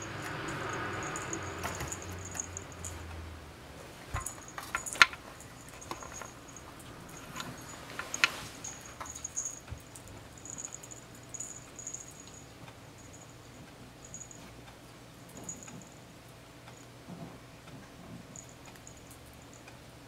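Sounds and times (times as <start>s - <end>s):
faint high tinkle: 0.0s - 3.1s, 4.2s - 14.5s, 15.3s - 16.0s
soft rustle: 3.8s - 12.4s.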